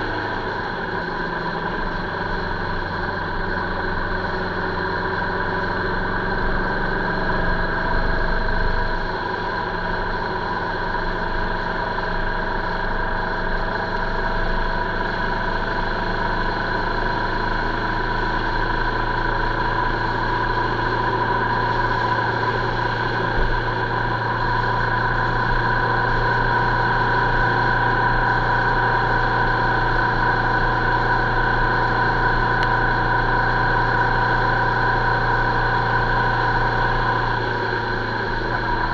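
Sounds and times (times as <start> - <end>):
vehicle engine humming: 0.0 - 38.9.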